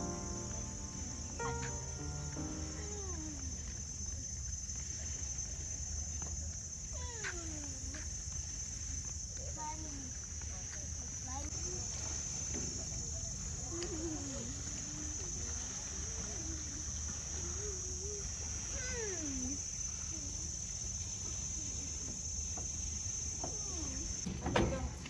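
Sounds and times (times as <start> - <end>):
low steady hum: 0.0 - 3.7
faint wavering voices: 0.0 - 3.8
insects chirring: 0.0 - 25.0.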